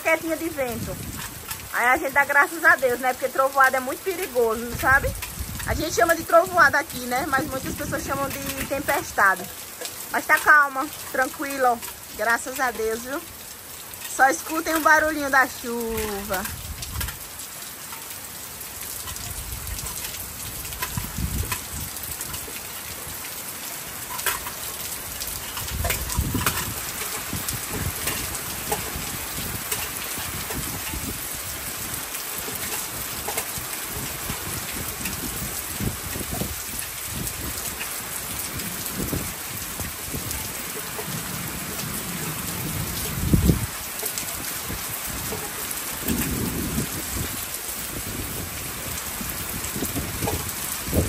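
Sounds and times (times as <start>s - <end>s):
heavy rain falling: 0.0s - 51.0s
raindrops pattering: 0.0s - 51.0s
rumbles of thunder: 46.0s - 51.0s.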